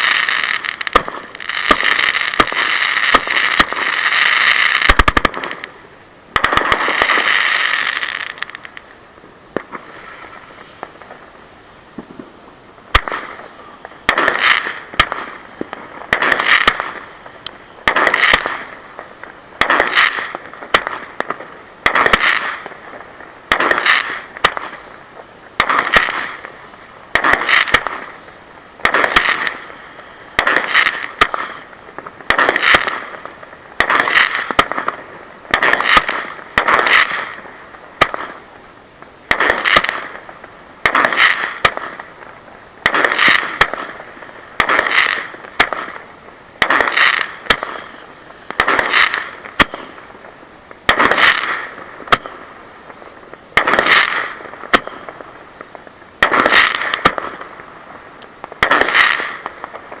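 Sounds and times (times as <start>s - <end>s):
firework battery reports: 0.0s - 20.9s.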